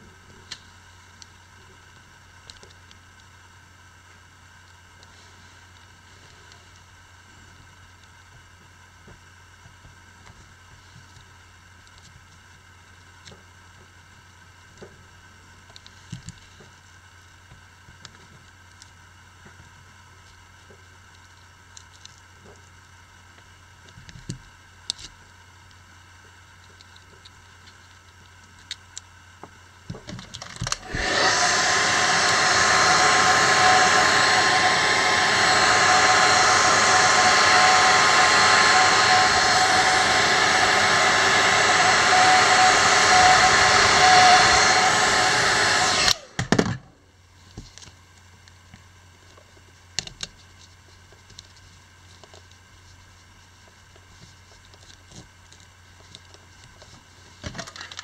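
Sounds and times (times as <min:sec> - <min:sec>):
hair dryer blowing: 0:30.7 - 0:46.8.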